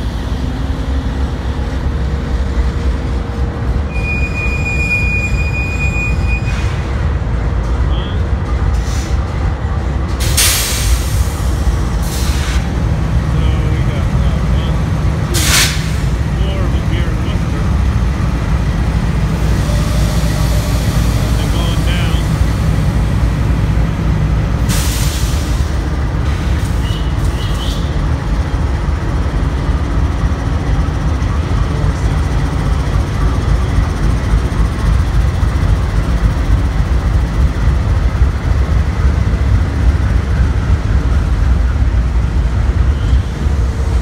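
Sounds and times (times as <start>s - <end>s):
freight train passing: 0.0s - 44.0s
high wheel squeaks: 3.9s - 6.9s.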